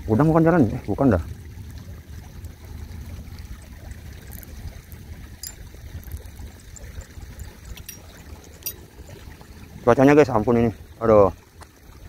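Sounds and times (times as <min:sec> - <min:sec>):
faint high clicks: 0:04.2 - 0:08.8.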